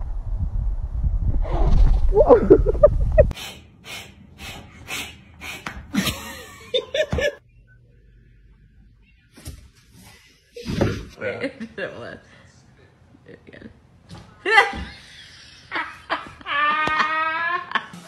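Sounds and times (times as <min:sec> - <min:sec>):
wind buffeting microphone: 0:00.0 - 0:03.3
person laughing breathily: 0:02.2 - 0:03.4.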